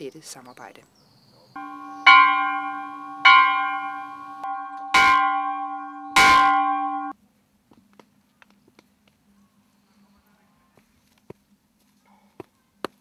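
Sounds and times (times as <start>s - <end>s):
church bell ringing: 1.6s - 7.1s.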